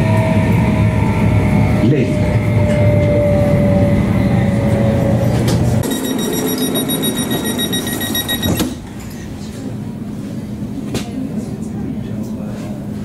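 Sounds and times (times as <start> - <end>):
train rumble and whine: 0.0 - 13.0
door warning beeps: 5.8 - 8.8.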